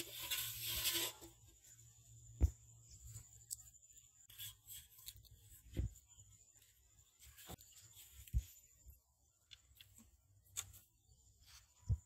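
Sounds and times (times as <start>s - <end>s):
light rubbing: 0.0s - 2.0s
rustling and scraping: 0.0s - 9.0s
dull thump: 2.4s - 2.7s, 5.7s - 6.0s.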